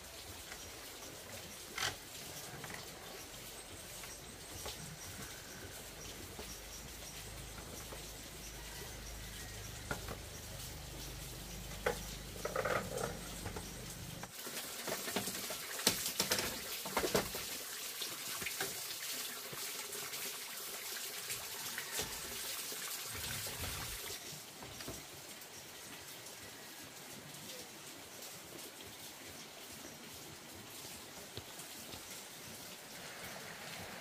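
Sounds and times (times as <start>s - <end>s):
water running and splashing: 0.0s - 34.0s.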